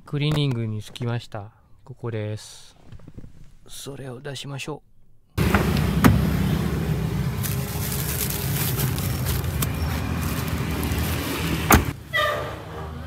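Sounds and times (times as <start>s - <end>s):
car door opening: 5.4s - 6.7s, 9.3s - 12.3s
car and street noise rumble: 5.4s - 13.0s
plastic bag rustling: 7.3s - 11.7s.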